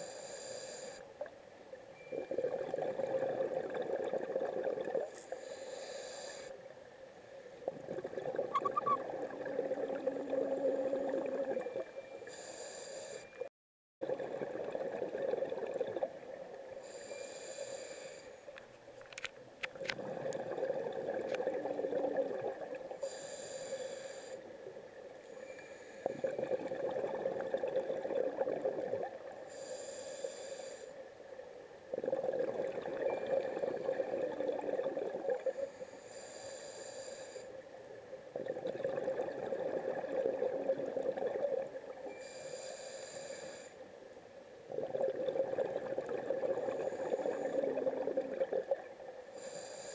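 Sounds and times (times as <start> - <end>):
regulator inhale hiss: 0.0 - 1.1, 5.1 - 6.6, 12.2 - 13.4, 16.8 - 18.5, 23.0 - 24.5, 25.2 - 26.3, 29.5 - 31.0, 35.4 - 37.6, 42.1 - 43.9, 46.6 - 47.7, 49.3 - 49.9
exhaust bubbling underwater: 7.7 - 11.7, 14.0 - 16.1, 26.2 - 29.2, 31.9 - 35.4, 38.4 - 41.8, 44.7 - 48.9.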